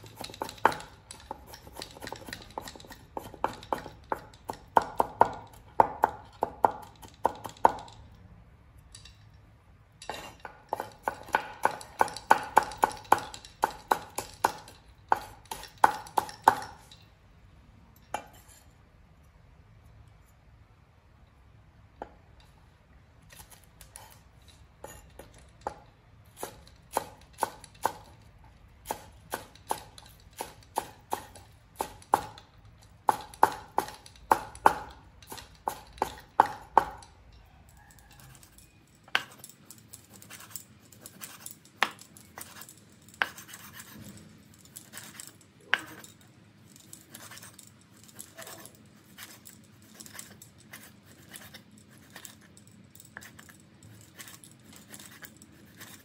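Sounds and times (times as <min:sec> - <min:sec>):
cleaver scraping on board: 0:42.4 - 0:44.2.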